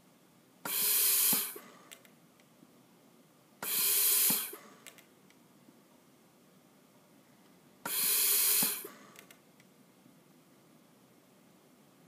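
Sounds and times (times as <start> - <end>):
gas flow hissing: 0.6 - 1.8, 3.6 - 4.7, 7.8 - 9.1.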